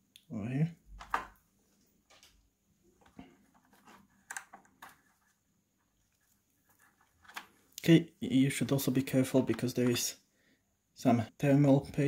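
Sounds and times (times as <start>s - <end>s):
faint clicks and taps: 1.0s - 7.9s.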